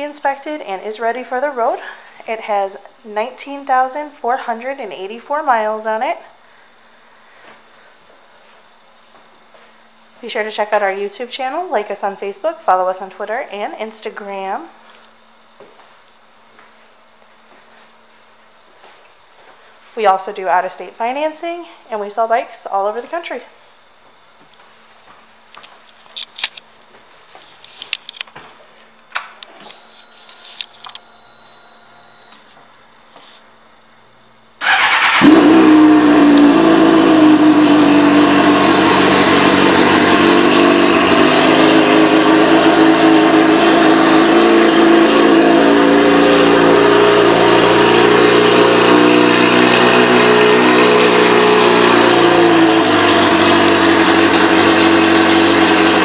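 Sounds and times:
motorcycle engine starting and idling: 34.6 - 56.0.

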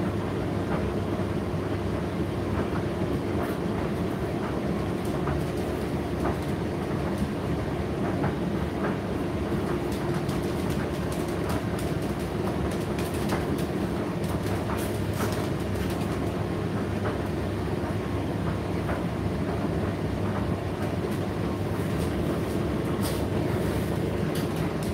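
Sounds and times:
tumble dryer rumbling: 0.0 - 24.9
light clicks from tumbling load: 18.4 - 24.9.

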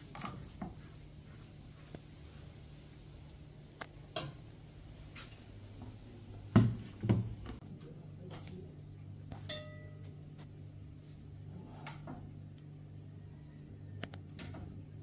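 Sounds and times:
spoon and crockery clinking: 9.5 - 10.0.

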